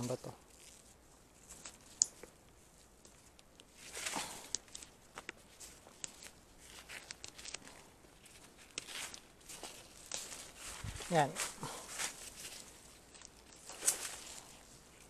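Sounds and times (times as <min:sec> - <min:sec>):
leaves and stems rustling: 0:00.0 - 0:15.0
small clicks and snaps: 0:01.5 - 0:10.6, 0:12.3 - 0:15.0.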